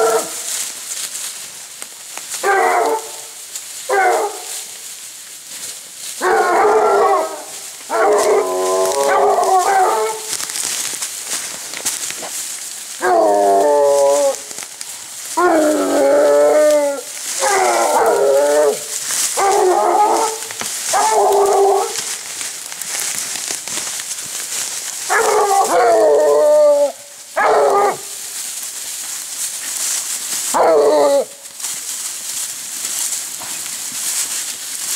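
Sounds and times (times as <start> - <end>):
hounds baying: 2.4 - 3.3, 3.9 - 4.6, 6.2 - 10.4, 15.4 - 22.2, 25.0 - 28.2, 30.4 - 31.4.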